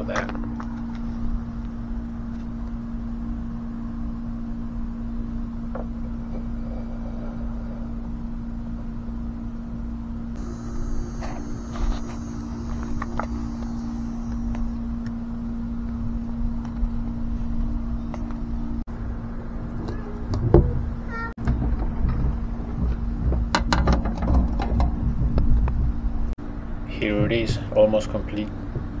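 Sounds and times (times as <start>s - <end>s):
low mechanical hum: 0.0s - 29.0s
higher hum: 0.5s - 21.4s
thin high hiss: 10.4s - 15.5s.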